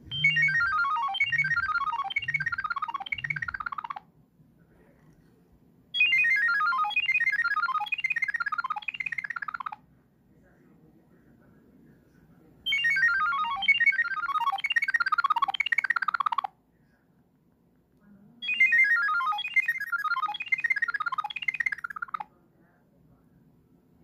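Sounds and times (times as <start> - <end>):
monophonic phone ringtone: 0.0 - 4.1, 6.0 - 9.8, 12.7 - 16.5, 18.4 - 22.3.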